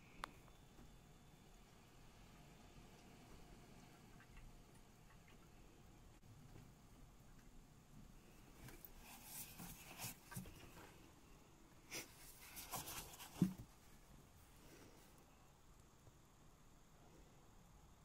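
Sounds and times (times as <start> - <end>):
plastic jug rustles and taps: 12.4 - 13.8.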